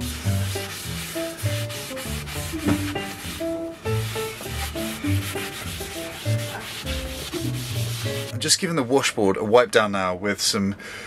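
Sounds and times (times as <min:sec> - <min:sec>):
rag rubbing on wood: 0:00.0 - 0:08.3
background music with bass: 0:00.0 - 0:08.8.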